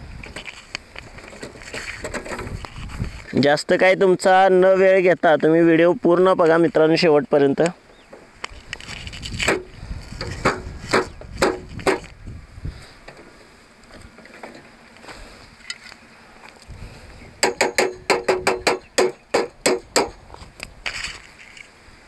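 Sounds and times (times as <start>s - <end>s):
metal and plastic parts knocking: 17.4s - 20.2s.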